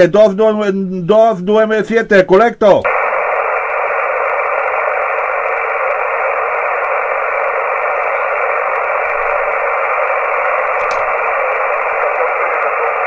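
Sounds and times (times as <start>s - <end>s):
radio static hiss: 2.8s - 13.0s.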